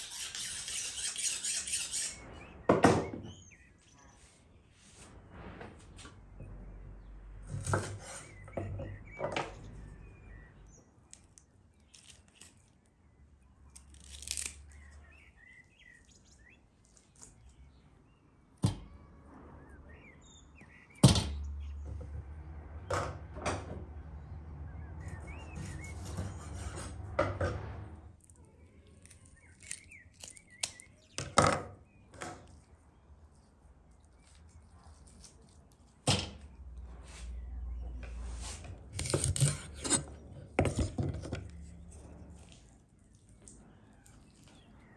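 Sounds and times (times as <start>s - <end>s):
small birds chirping: 0.0s - 4.8s, 8.0s - 21.9s, 24.2s - 26.4s, 28.3s - 38.3s, 39.1s - 44.9s
low rumble: 5.0s - 7.5s.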